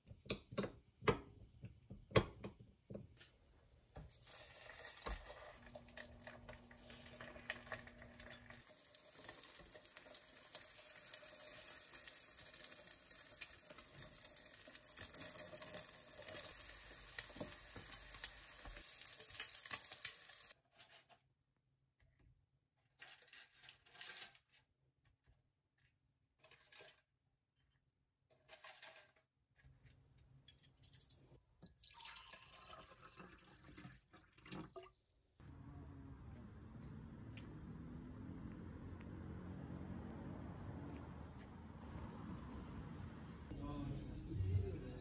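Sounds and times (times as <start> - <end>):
egg sizzling in a pan: 4.0 - 20.6.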